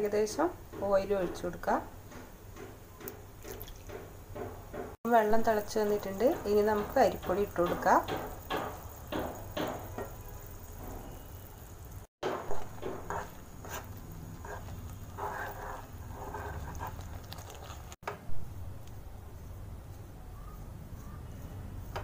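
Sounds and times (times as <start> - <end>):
water boiling in a pan: 5.8 - 18.0
spoon scraping a pan: 12.2 - 18.0.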